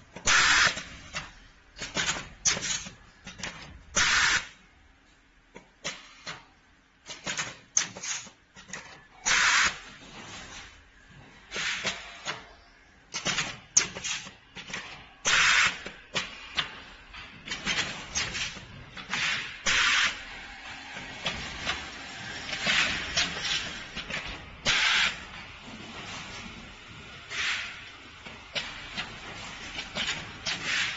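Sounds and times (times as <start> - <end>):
pneumatic air hisses: 4.0 - 4.5, 9.2 - 9.8, 11.5 - 12.3, 19.1 - 20.3, 24.6 - 25.2, 27.3 - 27.9, 30.5 - 30.9.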